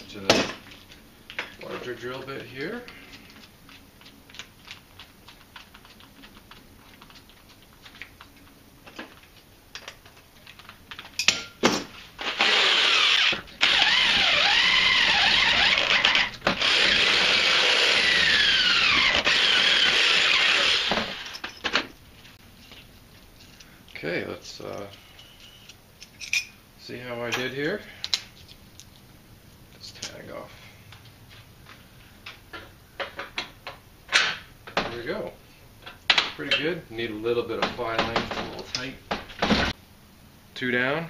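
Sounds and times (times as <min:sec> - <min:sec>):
power drill boring metal: 0:12.2 - 0:21.4.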